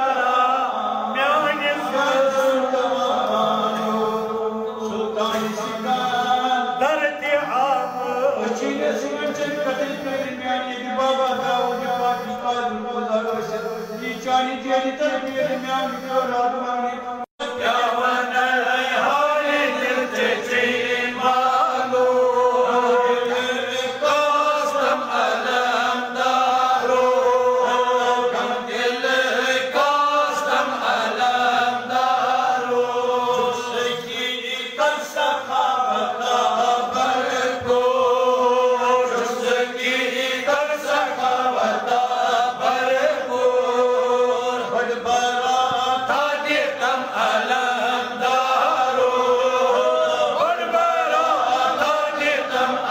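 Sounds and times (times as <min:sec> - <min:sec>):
person chanting: 0:00.0 - 0:52.9.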